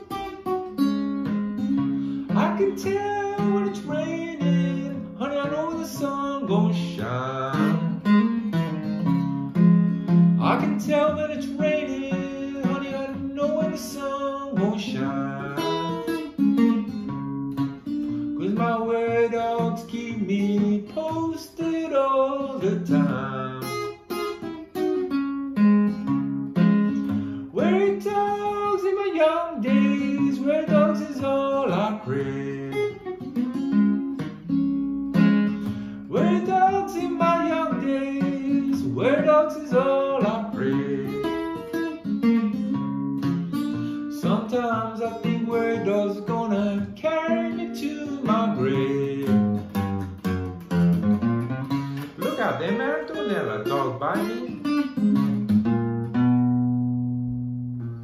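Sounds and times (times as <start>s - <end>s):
fingerstyle acoustic guitar: 0.0s - 58.0s
man singing: 2.2s - 8.7s, 10.3s - 16.7s, 18.2s - 24.2s, 27.1s - 33.4s, 35.6s - 42.0s, 43.5s - 50.0s, 51.9s - 54.7s.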